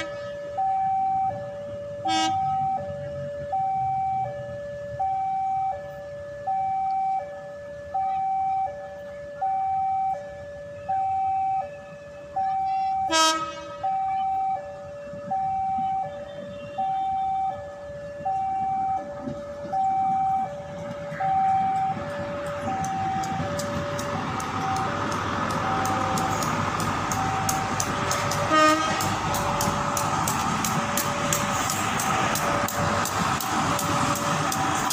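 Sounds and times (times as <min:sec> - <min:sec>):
train horn toot: 0:00.0 - 0:00.4, 0:02.1 - 0:02.6, 0:12.6 - 0:14.2, 0:28.4 - 0:29.1
train passing: 0:00.0 - 0:06.5, 0:08.5 - 0:34.9
two-tone crossing alarm: 0:00.0 - 0:34.9
wheels clicking over rail joints: 0:18.9 - 0:34.9.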